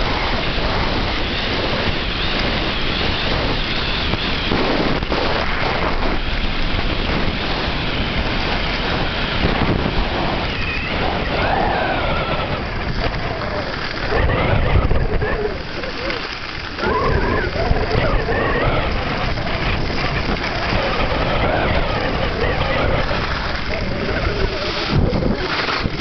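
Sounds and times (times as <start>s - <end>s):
wind buffeting microphone: 0.0s - 26.0s
skis hissing on snow: 19.0s - 26.0s.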